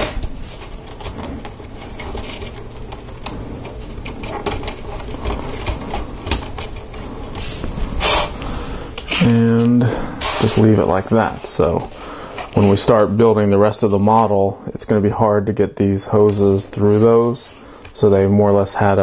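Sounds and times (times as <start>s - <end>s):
plastic rubbing on plastic: 0.0s - 14.3s.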